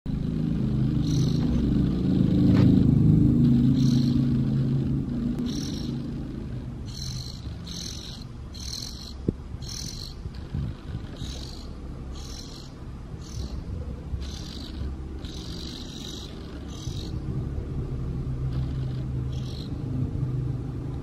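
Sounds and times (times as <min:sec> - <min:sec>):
low rumble: 0:00.1 - 0:21.0
fledgling bird begging calls: 0:01.0 - 0:02.4, 0:03.5 - 0:04.4, 0:05.4 - 0:17.2, 0:18.5 - 0:19.8.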